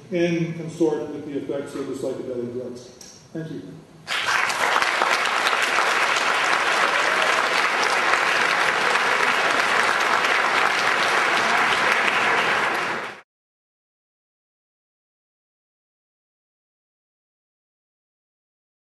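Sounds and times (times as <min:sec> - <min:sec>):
audience applauding: 0:04.1 - 0:13.2.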